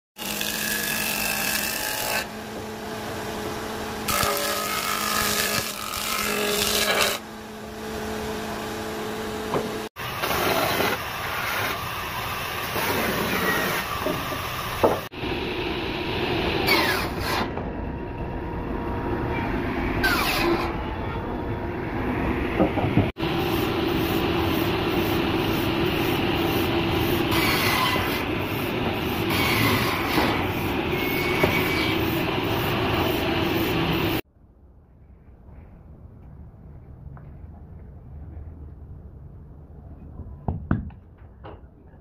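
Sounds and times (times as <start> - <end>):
band saw cutting wood: 0.2 - 15.1, 16.2 - 17.6, 19.9 - 20.9, 23.1 - 34.2.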